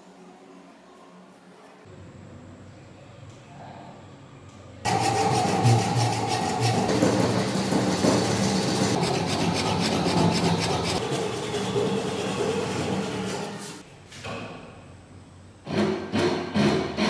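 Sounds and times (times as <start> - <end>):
hand saw cutting wood: 4.9 - 13.8, 15.7 - 17.0.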